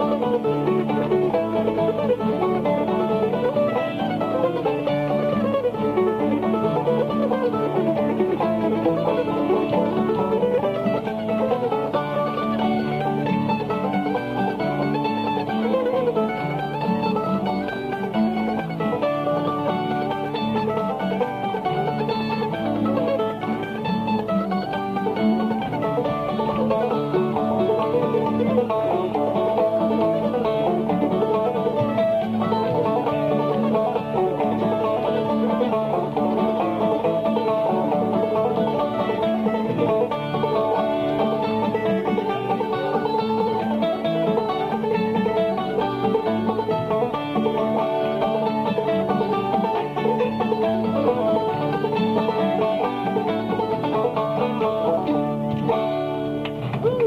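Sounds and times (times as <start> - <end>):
banjo picking: 0.0 - 57.0
other instruments playing: 0.0 - 57.0.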